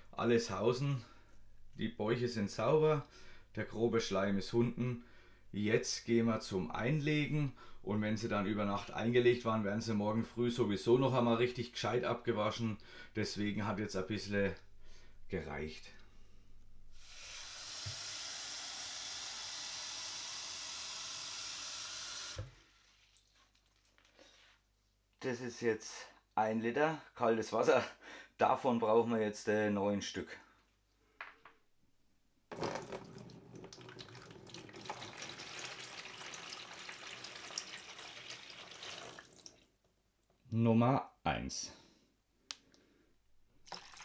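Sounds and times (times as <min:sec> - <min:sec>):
tap running water into a jug: 0:17.6 - 0:24.1, 0:32.5 - 0:39.7, 0:43.6 - 0:44.0.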